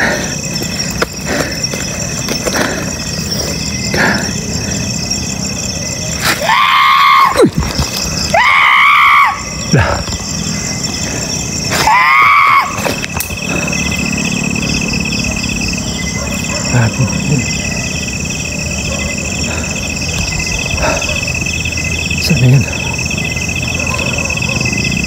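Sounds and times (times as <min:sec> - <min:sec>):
crickets chirping: 0:00.0 - 0:25.0
drawn-out shrieks: 0:02.9 - 0:16.3.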